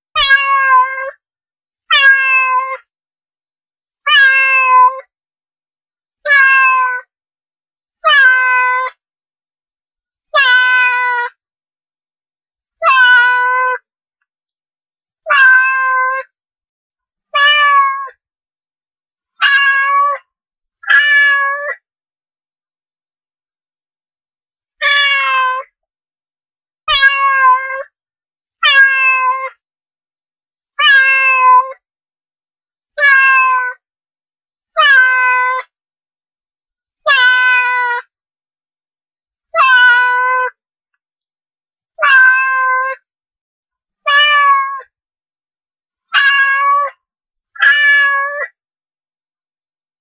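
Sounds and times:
cat meowing: 0.2s - 1.2s, 1.9s - 2.8s, 4.1s - 5.1s, 6.2s - 7.1s, 8.0s - 8.9s, 10.4s - 11.3s, 12.8s - 13.8s, 15.3s - 16.3s, 17.4s - 18.2s, 19.4s - 20.2s, 20.8s - 21.8s, 24.8s - 25.7s, 26.9s - 27.9s, 28.6s - 29.6s, 30.8s - 31.8s, 33.0s - 33.8s, 34.8s - 35.7s, 37.1s - 38.0s, 39.5s - 40.6s, 42.0s - 43.0s, 44.1s - 44.9s, 46.1s - 47.0s, 47.6s - 48.6s.

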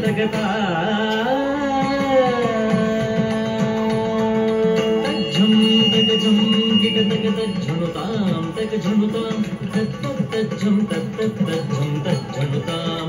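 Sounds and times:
classical indian music: 0.0s - 13.0s.

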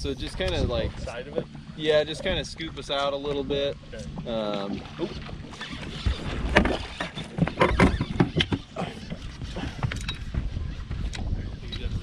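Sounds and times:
water splashing: 0.2s - 9.8s
footsteps and gear knocking on deck: 6.6s - 12.0s.

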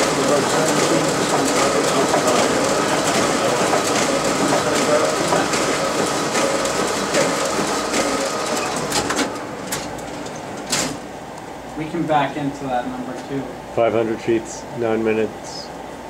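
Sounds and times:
printer running: 0.0s - 11.1s.

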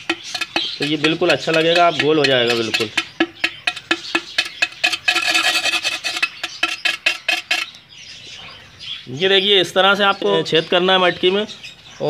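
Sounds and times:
faint ring of clay pot: 0.0s - 7.7s
rod scraping clay pot: 0.0s - 7.8s.

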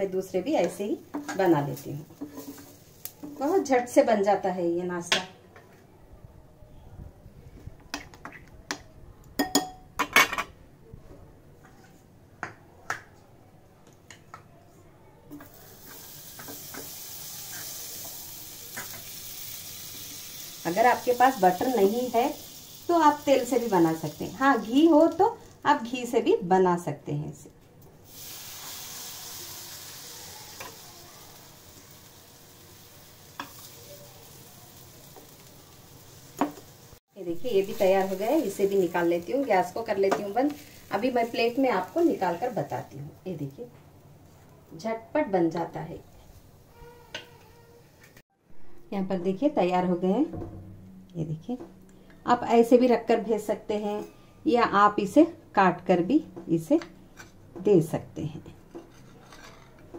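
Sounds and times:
butter sizzling on hot pan: 1.1s - 4.0s, 15.4s - 25.9s, 28.0s - 43.5s.

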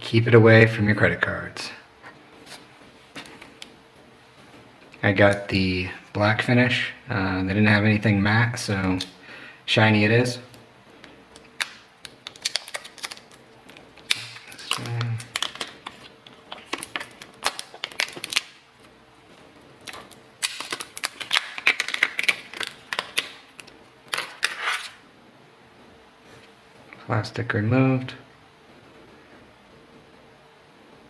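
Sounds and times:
plastic film peeling and crinkling: 11.3s - 25.0s.

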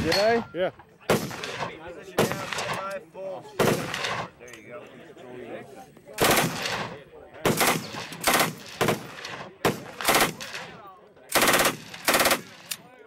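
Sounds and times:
automatic rifle fire bursts: 6.2s - 12.8s.

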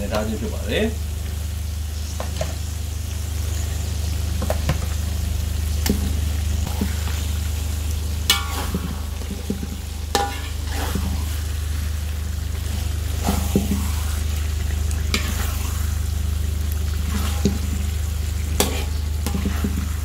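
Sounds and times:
fish sizzling in a wok: 0.0s - 20.0s
low steady hum: 0.0s - 20.0s
ringing strikes on wok: 8.3s - 9.0s
spatula scraping a wok: 8.3s - 11.5s, 12.6s - 14.3s, 15.1s - 16.0s, 18.4s - 20.0s.

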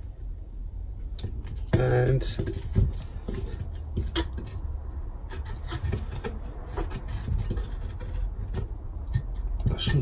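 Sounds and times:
scrapes and metal clicks: 2.4s - 10.0s.

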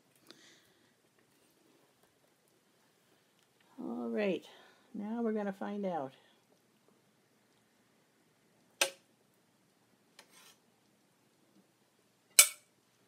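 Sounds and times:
faint scrape: 10.2s - 10.6s
metal spoon clinking on pot: 12.4s - 12.7s.

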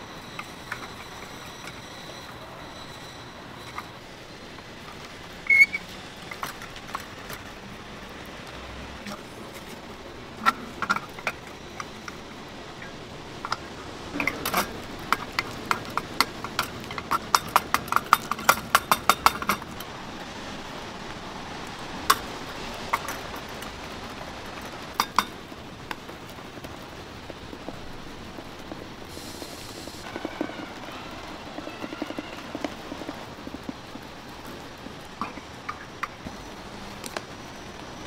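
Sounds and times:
steady background hiss: 0.0s - 38.0s
metal utensils clinking and tapping: 0.2s - 4.0s, 9.0s - 19.9s, 22.0s - 23.7s, 24.5s - 26.0s.

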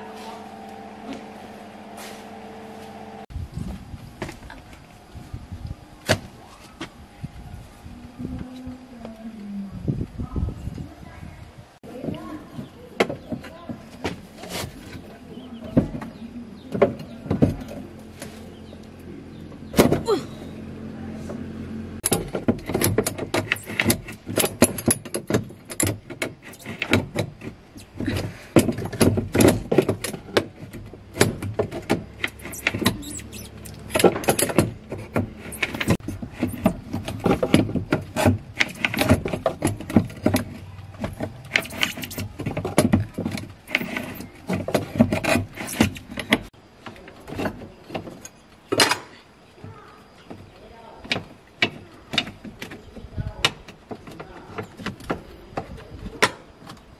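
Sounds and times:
metallic clanks and scrapes: 22.0s - 46.6s
metal squeaking: 22.5s - 28.1s, 29.6s - 46.5s.

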